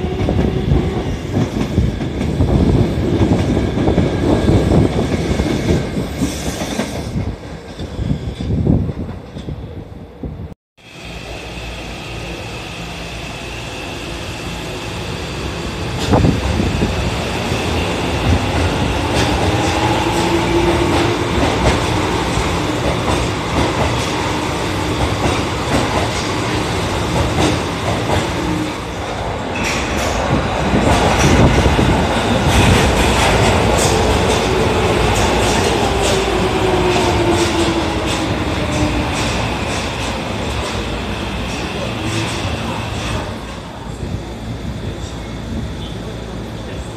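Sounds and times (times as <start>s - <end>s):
train rumble: 11.1s - 46.9s.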